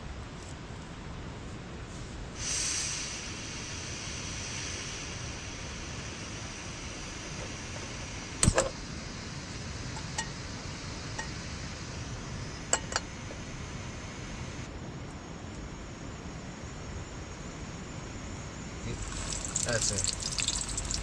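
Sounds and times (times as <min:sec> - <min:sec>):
steady background hiss: 0:00.0 - 0:21.0.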